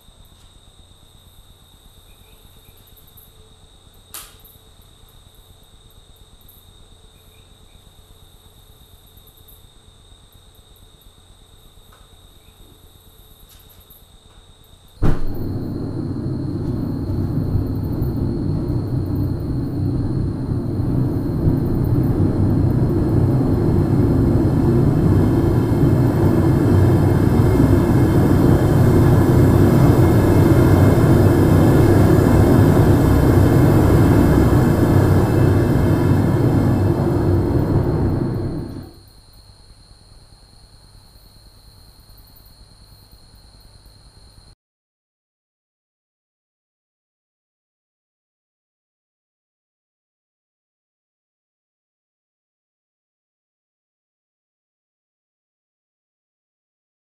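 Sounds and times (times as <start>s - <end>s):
propane burner lighting whoosh: 15.0s - 39.0s
rushing burner flame: 15.0s - 39.0s.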